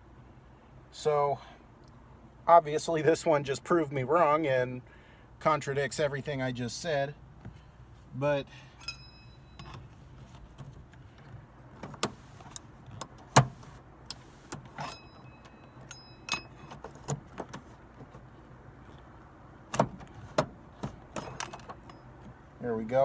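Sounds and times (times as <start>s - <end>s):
steady low hum: 0.0s - 23.0s
metallic pings of clip: 8.8s - 9.8s, 14.8s - 16.7s.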